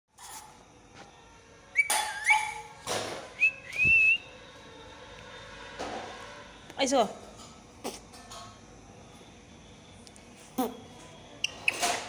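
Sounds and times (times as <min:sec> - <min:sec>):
parakeet whistling: 0:01.8 - 0:02.7.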